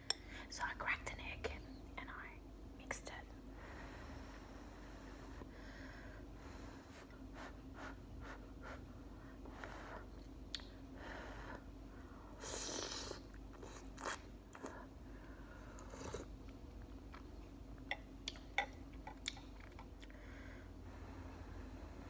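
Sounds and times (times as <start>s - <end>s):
person chewing noodles: 12.5s - 14.9s, 15.7s - 20.2s.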